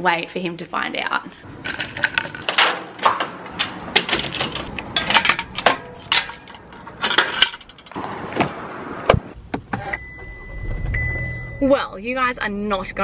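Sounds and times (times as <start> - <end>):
keys jangling: 1.6 - 7.9
door lock and handle rattling: 1.6 - 8.6
metal gate latch clicking: 1.7 - 8.0.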